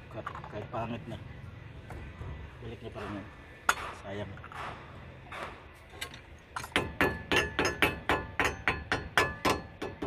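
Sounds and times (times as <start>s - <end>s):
metal tool tapping metal: 6.0s - 10.0s.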